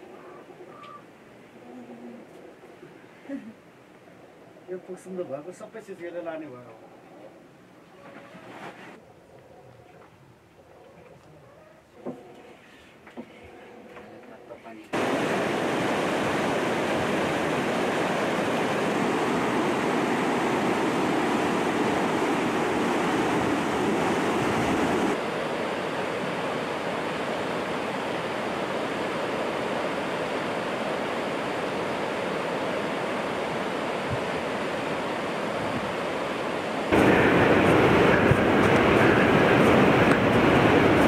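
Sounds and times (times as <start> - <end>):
river rushing over rocks: 15.0 - 25.2, 36.1 - 41.0.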